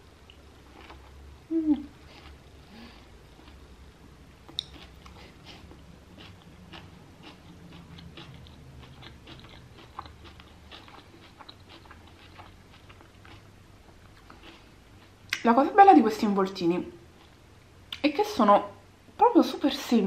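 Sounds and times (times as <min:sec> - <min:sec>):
person chewing food: 0:00.2 - 0:03.8, 0:04.4 - 0:15.4, 0:17.2 - 0:18.0.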